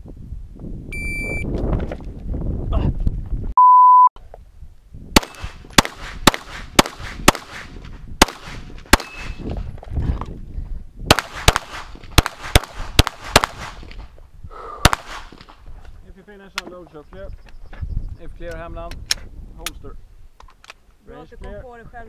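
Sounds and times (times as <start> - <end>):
pistol shots: 5.2 - 9.4, 11.1 - 14.0, 14.8 - 15.5.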